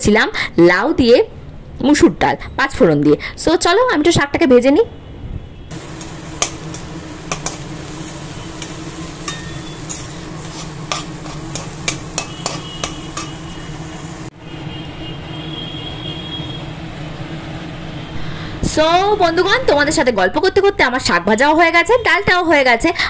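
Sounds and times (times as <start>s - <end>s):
greens frying in a pan: 5.7s - 14.3s
metal spatula scraping a pan: 5.8s - 14.1s.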